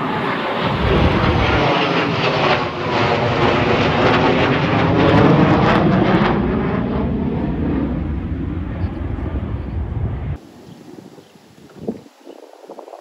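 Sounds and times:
jet fighters roaring past: 0.0 - 11.0.

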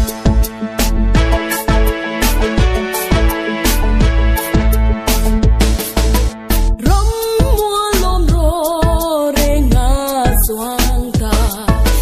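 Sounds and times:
drum beat: 0.0 - 11.8
bass: 0.0 - 12.0
woman singing: 6.8 - 12.0.

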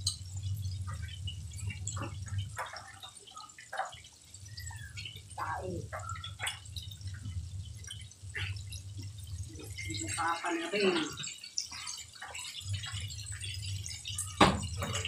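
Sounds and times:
low steady hum: 0.0 - 3.0, 4.3 - 11.2
oil sizzling and popping: 0.0 - 15.0.

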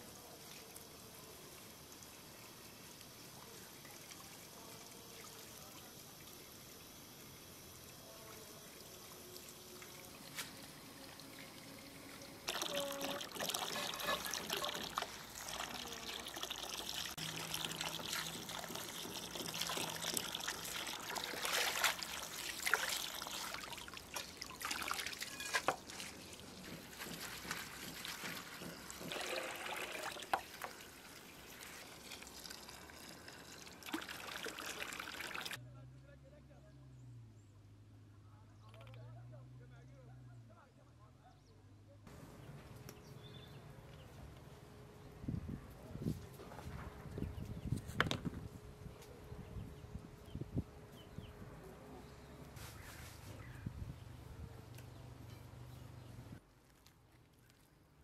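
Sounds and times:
water pouring and trickling: 0.2 - 35.6
small clicks and splashes: 9.3 - 35.6, 38.6 - 39.1, 56.5 - 58.0.

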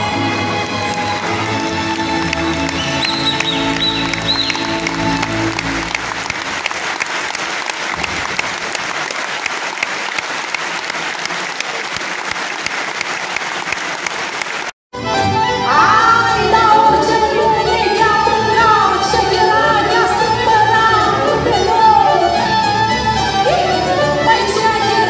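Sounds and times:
folk music: 0.0 - 8.9, 15.0 - 25.0
audience applauding: 0.2 - 14.8
music with singing: 15.4 - 25.0.

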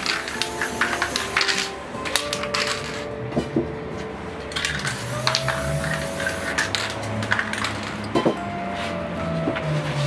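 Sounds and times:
spray paint can hissing: 0.0 - 3.0, 4.6 - 8.0
metallic clicks and clinks: 0.0 - 3.1, 4.4 - 8.2.

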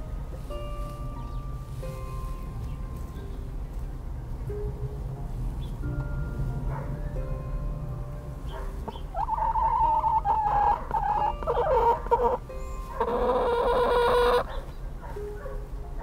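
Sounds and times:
chicken calling: 8.8 - 14.6.

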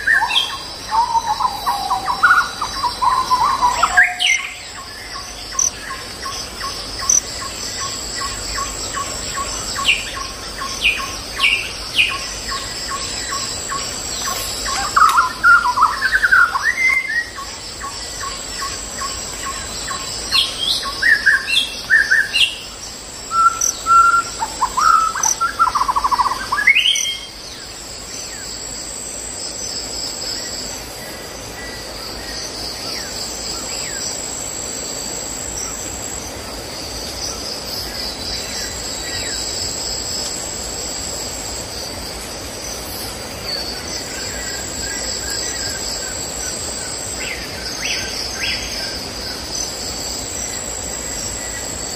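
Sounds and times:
birds chirping and calling: 0.0 - 27.4
insects droning: 0.0 - 51.9.

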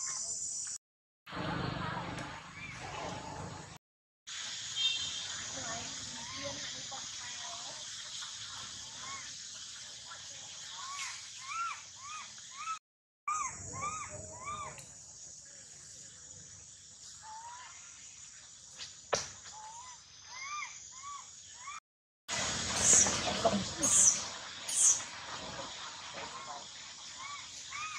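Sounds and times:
steady high hiss: 4.3 - 12.7, 13.6 - 27.9
young monkey crying: 10.8 - 14.8, 19.6 - 21.8, 27.2 - 27.9.

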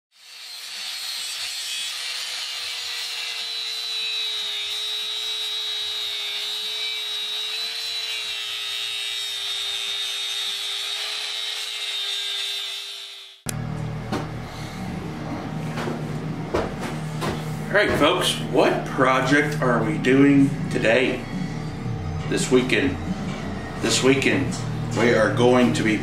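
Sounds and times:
angle grinder cutting steel: 0.1 - 13.5.

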